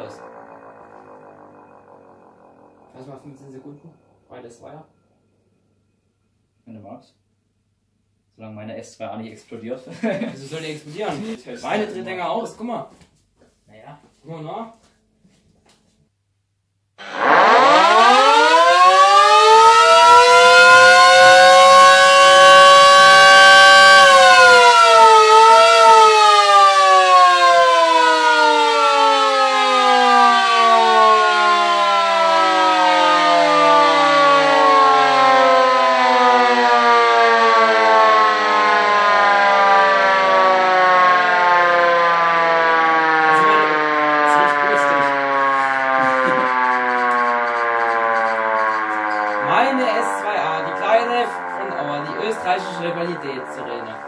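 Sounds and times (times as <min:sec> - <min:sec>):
electric motor sirens wailing: 0:00.0 - 0:04.3, 0:17.0 - 0:54.0.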